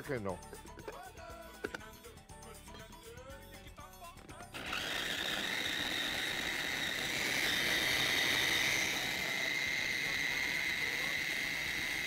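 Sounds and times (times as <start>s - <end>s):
food processor motor whine: 4.4s - 12.0s.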